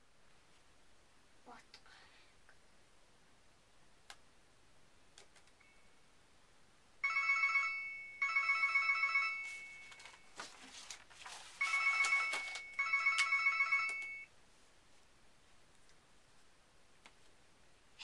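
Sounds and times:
phone ringtone trilling: 7.0s - 10.1s, 11.6s - 14.3s.

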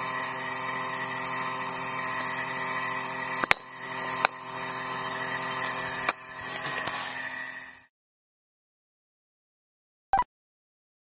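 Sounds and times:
sharp metallic clinks: 2.1s - 2.6s, 3.4s - 6.2s.

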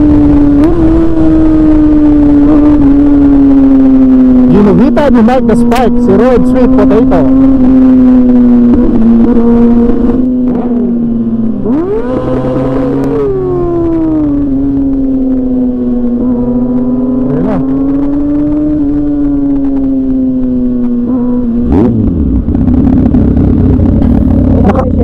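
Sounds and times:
motorcycle engine at high revs: 0.0s - 25.0s.

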